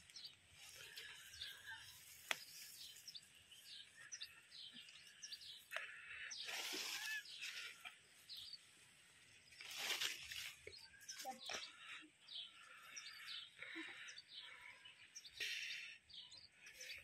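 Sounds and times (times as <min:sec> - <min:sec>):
birds chirping: 0:00.0 - 0:17.0
leaves rustling: 0:06.4 - 0:11.3.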